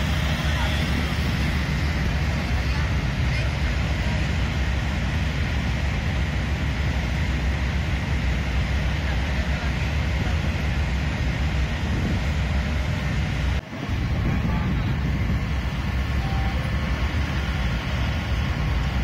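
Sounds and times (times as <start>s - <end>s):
wind buffeting microphone: 0.0s - 9.0s, 9.8s - 19.0s
motorway traffic rumble: 0.0s - 19.0s.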